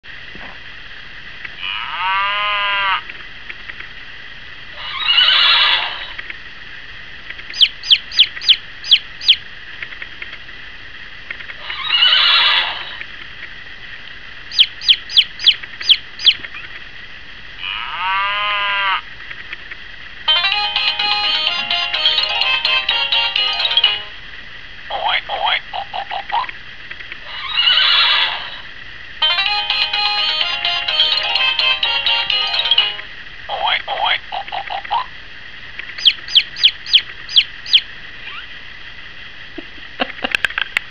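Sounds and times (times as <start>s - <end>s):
pitched animal call: 1.6s - 3.1s, 4.8s - 6.2s, 11.6s - 13.0s, 17.6s - 19.1s, 24.9s - 26.5s, 27.2s - 28.7s, 33.5s - 35.1s, 36.0s - 38.5s
rough noisy animal calls: 1.6s - 3.1s, 4.8s - 6.2s, 11.6s - 13.0s, 17.6s - 19.1s, 27.2s - 28.7s
chick cheeps: 7.5s - 9.4s, 14.5s - 16.7s, 36.0s - 38.5s.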